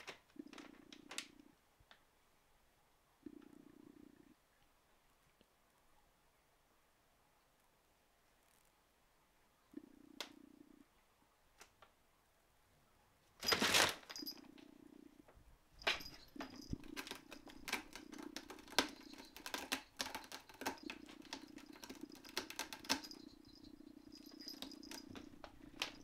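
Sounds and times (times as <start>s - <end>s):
plastic sheeting rustle: 13.4s - 14.2s
cat claws scratching rope: 15.8s - 26.0s.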